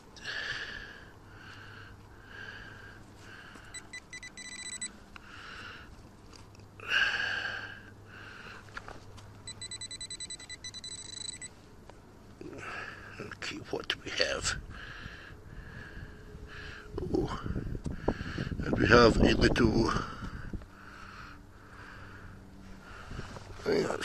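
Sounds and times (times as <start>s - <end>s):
fast high pulsed beeping: 3.7s - 4.9s, 9.5s - 11.5s
metal detector tones: 3.7s - 5.0s, 9.4s - 11.6s.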